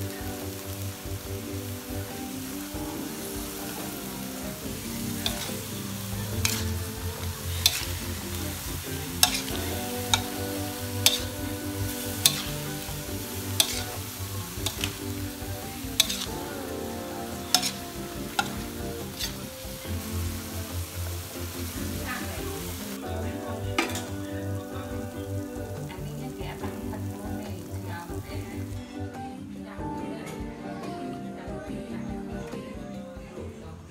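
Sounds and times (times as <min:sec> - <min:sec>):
vegetables sizzling in a wok: 0:00.0 - 0:29.2
metal spatula clanking on wok: 0:07.6 - 0:08.0, 0:09.2 - 0:10.4, 0:11.0 - 0:11.4, 0:12.2 - 0:13.0, 0:13.6 - 0:15.0, 0:16.0 - 0:16.3.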